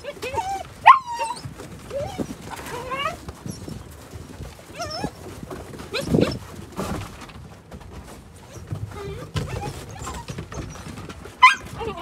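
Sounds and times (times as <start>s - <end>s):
puppies whining and yipping: 0.0s - 6.7s, 8.4s - 12.0s
high-pitched puppy calls: 0.1s - 3.8s, 9.0s - 12.0s.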